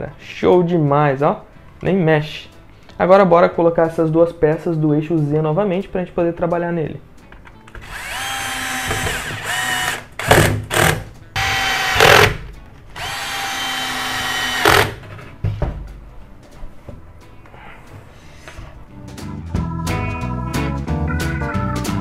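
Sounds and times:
cordless drill whining: 7.7 - 12.4, 13.0 - 15.0.

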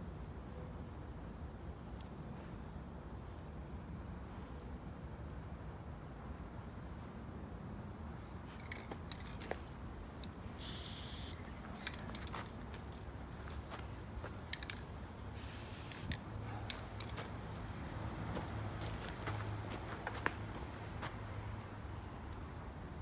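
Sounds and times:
spray paint can hissing: 10.6 - 11.4, 15.4 - 16.2.

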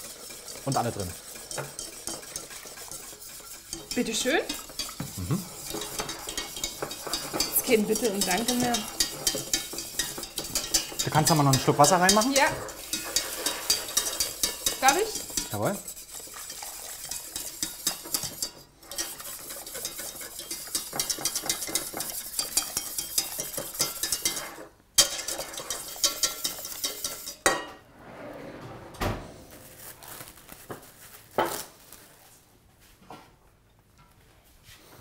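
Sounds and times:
whisk scraping metal pot: 0.0 - 27.7
dishes knocking: 3.8 - 15.5, 20.5 - 24.4, 25.0 - 27.8.

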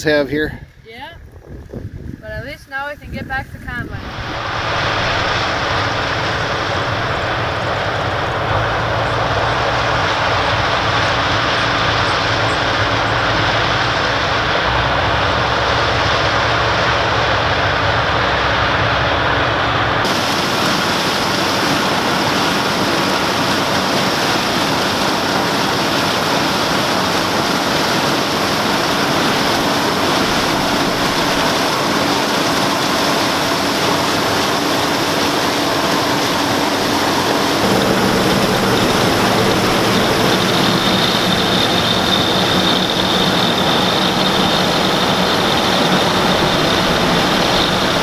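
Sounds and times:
combine harvester engine droning: 2.0 - 48.0.

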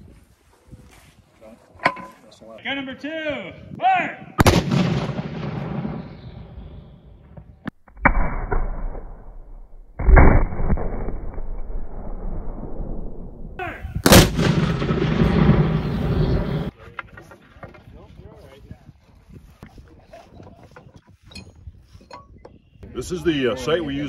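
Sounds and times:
cannon blasts with rumbling echo: 4.4 - 16.7.

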